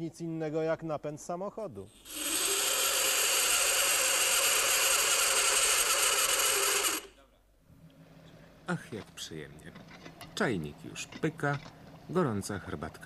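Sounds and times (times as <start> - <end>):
metal screeching on dry ice: 2.0 - 7.2.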